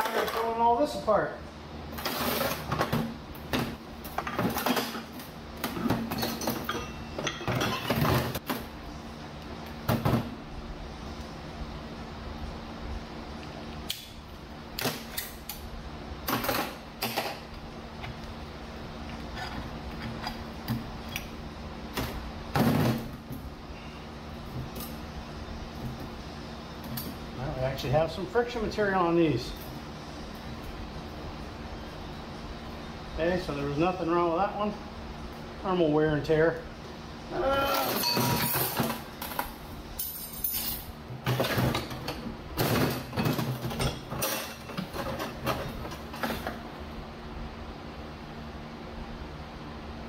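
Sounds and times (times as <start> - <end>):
low steady hum: 0.0 - 50.0
metal parts clattering and scraping: 1.9 - 2.9, 5.7 - 8.4, 37.9 - 46.5.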